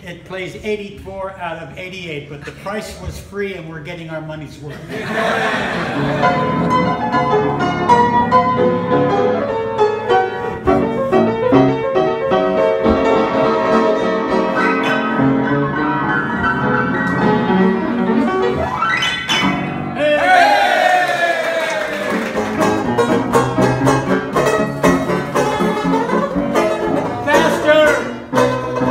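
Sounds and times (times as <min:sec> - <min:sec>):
solo piano playing: 0:06.0 - 0:20.0, 0:22.1 - 0:28.9.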